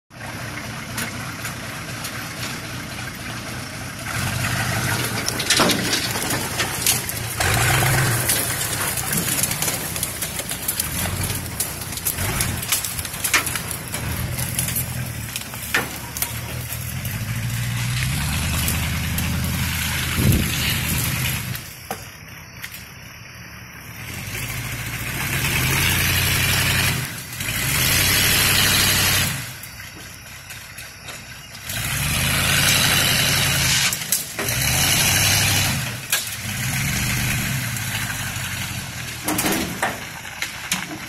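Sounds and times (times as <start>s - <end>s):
truck engine revving: 0.1s - 21.9s, 23.8s - 41.0s
branches snapping: 6.6s - 22.0s.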